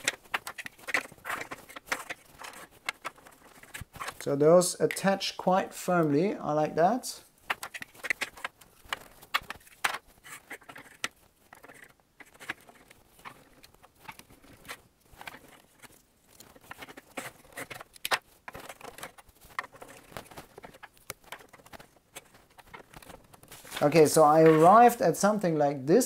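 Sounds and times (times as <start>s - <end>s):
plastic pieces clicking and tapping: 0.0s - 4.1s, 7.4s - 23.5s.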